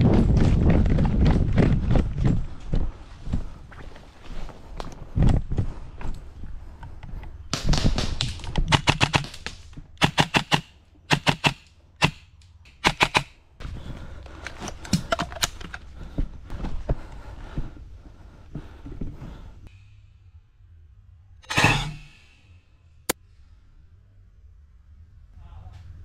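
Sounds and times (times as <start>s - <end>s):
airsoft rifle firing bursts: 10.0s - 12.2s, 12.8s - 13.3s.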